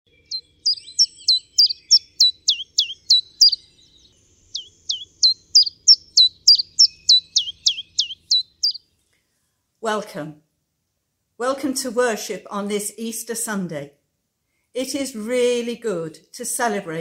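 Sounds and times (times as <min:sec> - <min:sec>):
songbird whistling downward notes: 0:00.1 - 0:08.8.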